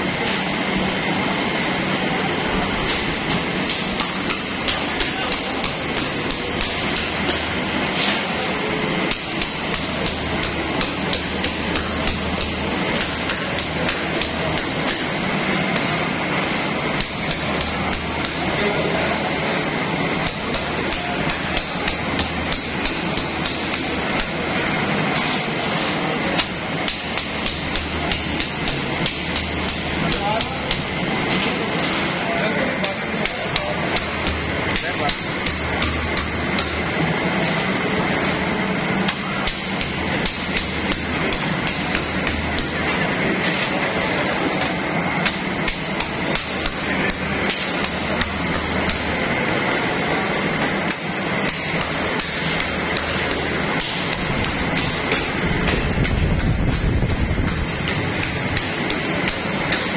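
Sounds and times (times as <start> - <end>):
low machine hum: 0.0 - 59.9
machine clacking: 44.6 - 59.9.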